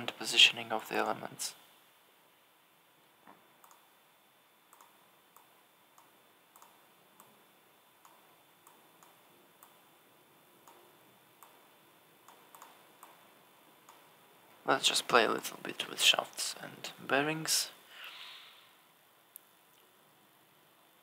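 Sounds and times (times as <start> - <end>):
computer mouse clicks: 3.6 - 3.8, 4.7 - 7.4, 12.3 - 13.2.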